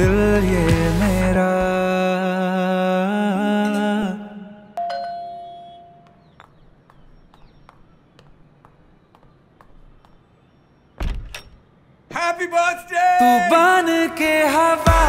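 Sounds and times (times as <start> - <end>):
chime ringing: 4.8 - 6.1
door lock and handle clunking: 11.0 - 11.7.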